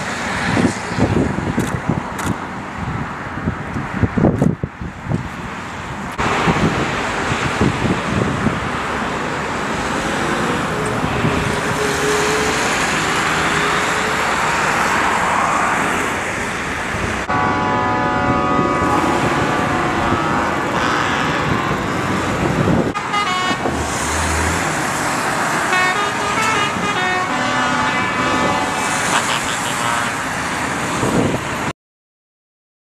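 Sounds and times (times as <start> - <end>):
tractor engines rumbling: 0.0 - 31.7
horns honking: 17.3 - 23.9, 25.5 - 30.3.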